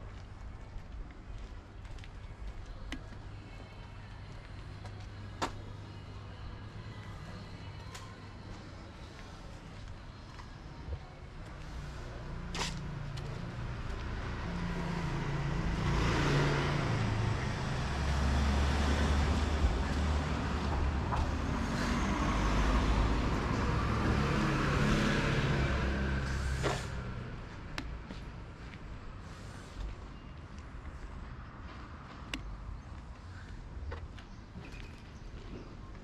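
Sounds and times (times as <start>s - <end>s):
vehicle engine hum: 2.6s - 34.9s
road and tyre hiss: 11.4s - 33.8s.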